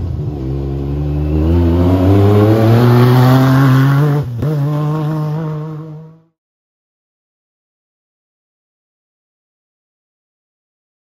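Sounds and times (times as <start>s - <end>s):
off-road vehicle engine accelerating: 0.0s - 6.4s.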